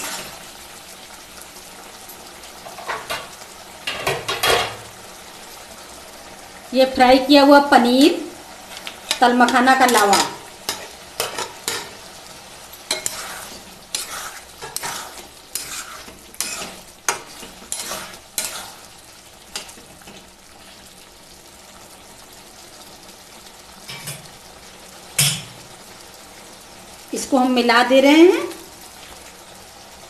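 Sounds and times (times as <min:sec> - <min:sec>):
metal spoon scraping a pan: 0:00.0 - 0:00.4, 0:08.7 - 0:12.1, 0:12.9 - 0:18.9
curry sizzling in a pan: 0:00.0 - 0:30.0.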